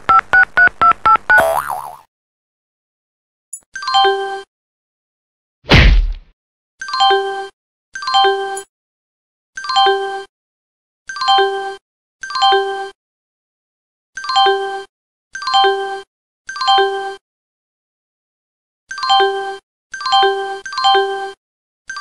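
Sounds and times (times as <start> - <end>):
low thump: 5.7 - 6.2.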